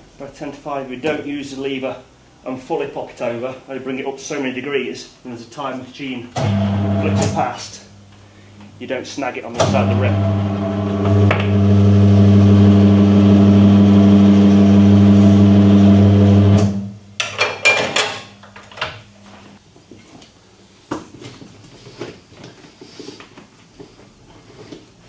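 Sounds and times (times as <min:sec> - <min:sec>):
electric motor humming: 0:06.4 - 0:07.4, 0:09.6 - 0:16.9.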